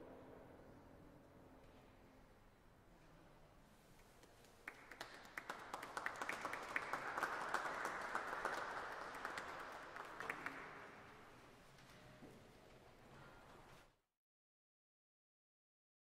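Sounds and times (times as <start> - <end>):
crowd applauding: 4.6 - 11.3.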